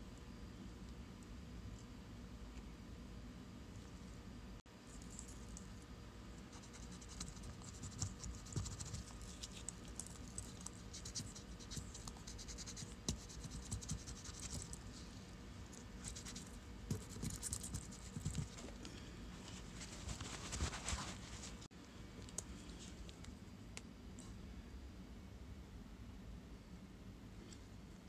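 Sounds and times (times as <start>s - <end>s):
swab scratching and rubbing: 6.5s - 14.9s.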